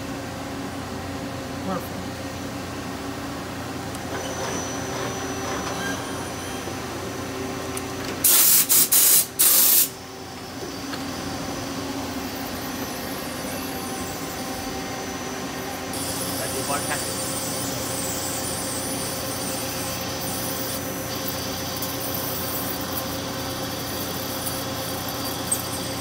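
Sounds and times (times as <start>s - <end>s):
air blow gun hissing: 8.2s - 10.0s.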